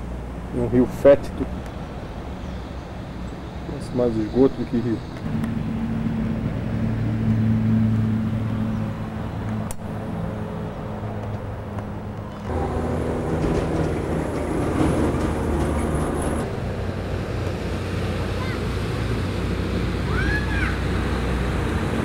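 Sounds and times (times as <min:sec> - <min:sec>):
broad rushing noise: 0:04.9 - 0:22.0
low motor hum: 0:05.2 - 0:22.0.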